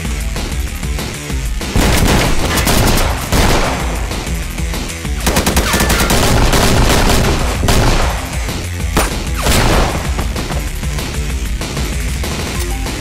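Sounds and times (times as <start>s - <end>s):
loud driving background music: 0.0s - 13.0s
rifle and pistol gunfire: 1.8s - 4.6s, 5.2s - 10.5s.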